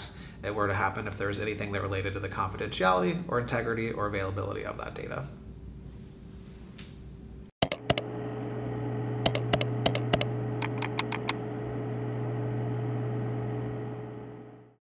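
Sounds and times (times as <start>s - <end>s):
keyboard typing clicks: 7.6s - 8.0s, 9.2s - 11.4s.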